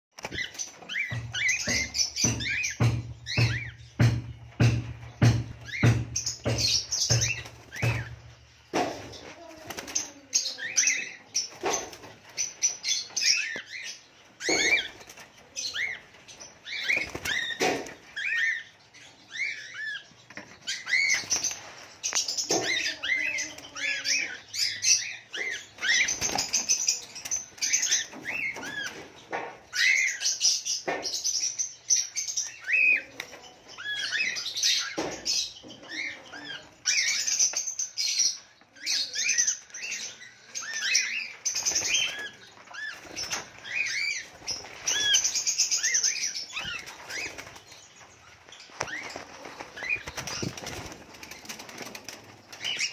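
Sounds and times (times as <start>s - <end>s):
wings flapping: 16.8s - 18.2s, 25.8s - 29.1s, 41.5s - 47.8s, 48.7s - 52.9s
cockatiels chirping: 39.0s - 47.4s.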